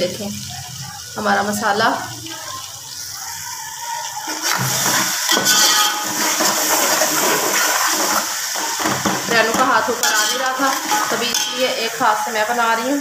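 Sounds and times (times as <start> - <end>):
food sizzling in oil: 0.0 - 13.0
metal ladle scraping pot: 4.3 - 11.9.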